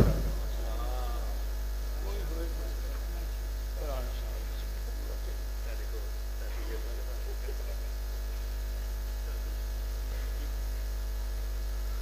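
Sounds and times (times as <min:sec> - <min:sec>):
faint voices: 0:00.0 - 0:08.5
electrical mains hum: 0:00.0 - 0:12.0.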